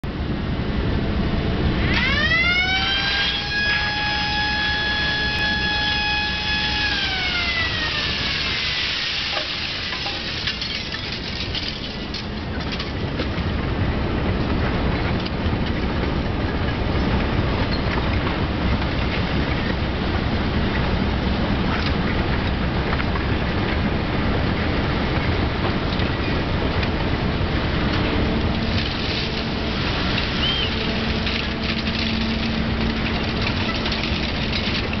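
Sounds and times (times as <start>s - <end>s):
low machinery rumble: 0.0s - 35.0s
crane drive whine: 0.1s - 35.0s
scrap metal knocking and rattling: 30.9s - 35.0s.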